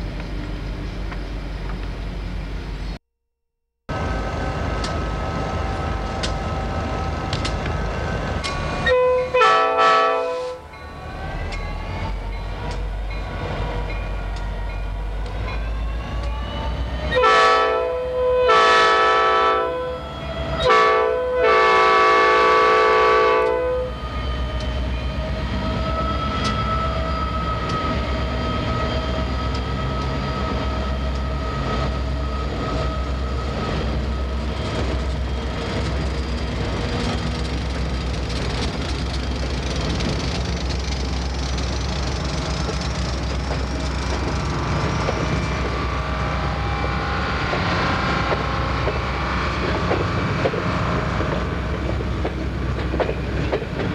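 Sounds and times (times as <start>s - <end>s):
train wheels rumbling on rails: 3.9s - 18.2s, 21.5s - 53.9s
diesel locomotive horn blasts: 8.8s - 10.6s, 17.1s - 24.0s.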